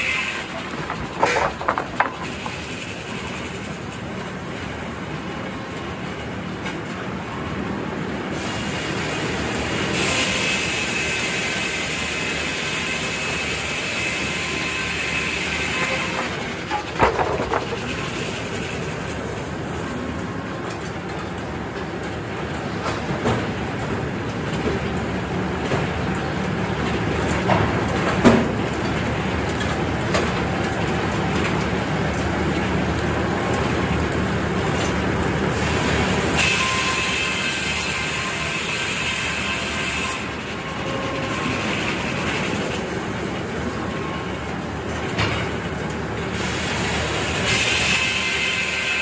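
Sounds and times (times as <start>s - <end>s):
sawmill machinery running: 0.0s - 49.0s
saw blade whine: 9.9s - 16.8s.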